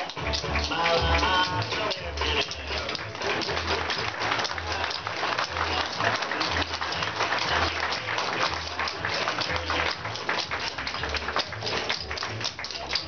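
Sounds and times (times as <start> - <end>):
audience clapping along: 0.0 - 13.0
clog dance taps: 0.0 - 13.0
song with bass beat: 0.0 - 13.0.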